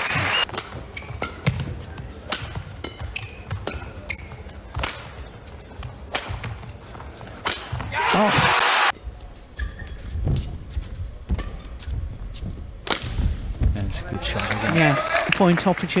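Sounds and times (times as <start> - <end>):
shoe squeaks on court: 0.9 - 1.4, 3.0 - 4.6, 9.1 - 11.9.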